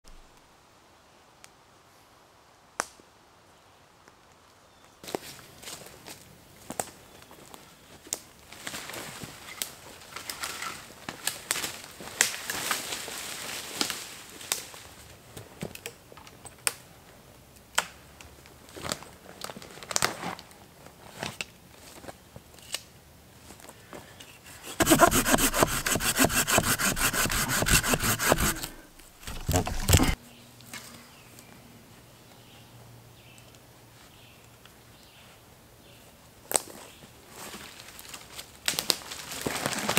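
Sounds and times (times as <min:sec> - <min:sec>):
hand saw cutting wood: 0:24.5 - 0:30.2.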